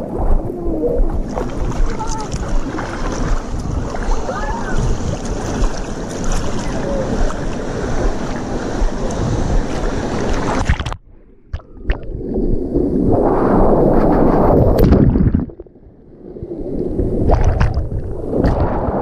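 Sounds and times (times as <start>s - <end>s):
wind buffeting microphone: 0.0s - 10.9s, 16.3s - 19.0s
churning water splashing: 0.0s - 11.0s
rushing water: 0.0s - 15.6s, 16.5s - 19.0s.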